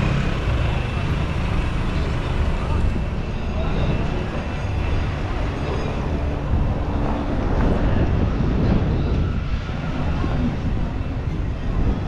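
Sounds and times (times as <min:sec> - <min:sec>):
road traffic rumble: 0:00.0 - 0:12.0
wind buffeting microphone: 0:02.7 - 0:12.0.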